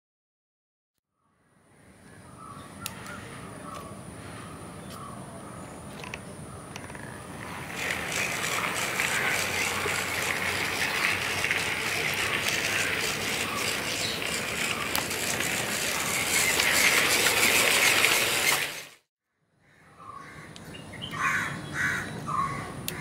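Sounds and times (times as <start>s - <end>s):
model locomotive whirring rattle: 6.0s - 19.1s.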